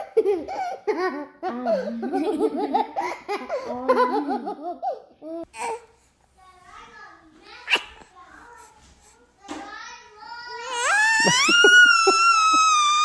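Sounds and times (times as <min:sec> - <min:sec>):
high-pitched giggling laughter: 0:11.0 - 0:13.0.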